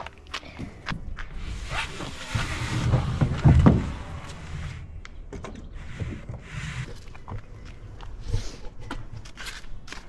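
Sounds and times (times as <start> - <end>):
footsteps on asphalt: 0.0 - 1.5, 7.0 - 10.0.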